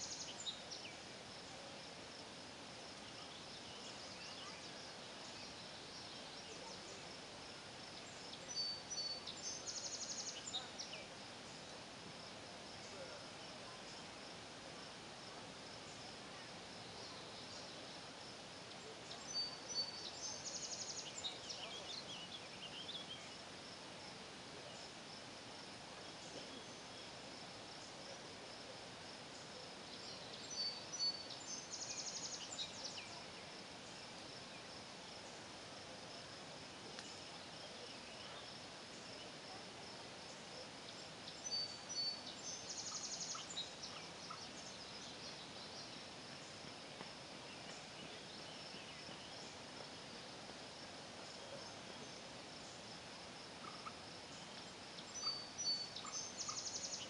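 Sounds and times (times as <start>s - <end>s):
bird singing with buzzy trill: 0.0s - 1.0s, 8.0s - 11.1s, 19.0s - 23.4s, 29.3s - 34.1s, 41.3s - 46.5s, 53.6s - 57.0s
crickets chirping: 0.0s - 57.0s.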